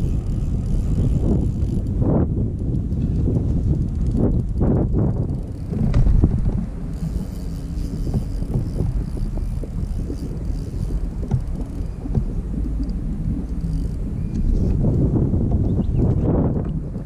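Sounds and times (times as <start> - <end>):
wind rumbling on microphone: 0.0 - 17.0
light knocks and taps: 10.9 - 13.0, 15.4 - 16.8.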